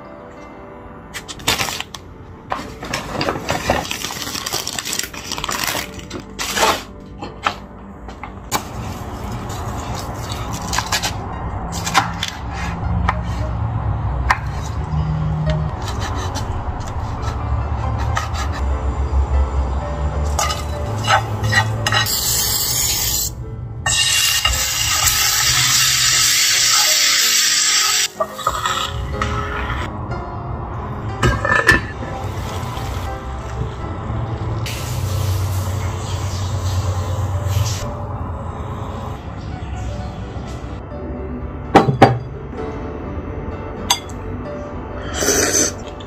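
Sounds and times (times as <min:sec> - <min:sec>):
plastic bags crinkling: 0:03.4 - 0:06.7
knife scraping cutting board: 0:15.8 - 0:17.4
food sizzling in frying pan: 0:23.9 - 0:28.6.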